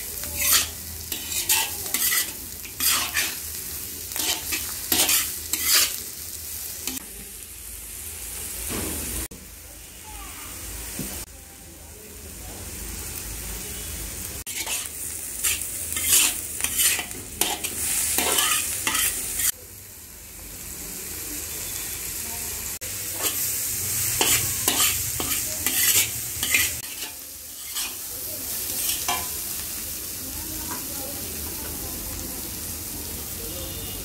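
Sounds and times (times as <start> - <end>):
vegetables sizzling in a wok: 0.0 - 34.0
metal spatula scraping a wok: 0.2 - 7.0, 14.4 - 19.6, 23.1 - 29.4.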